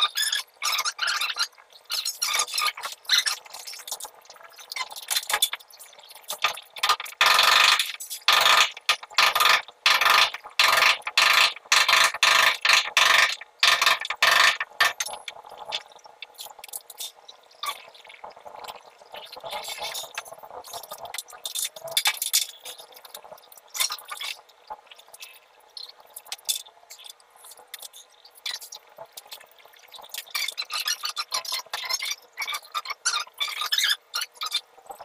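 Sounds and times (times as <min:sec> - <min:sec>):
loud repeated strokes on pipe: 0:06.8 - 0:15.1.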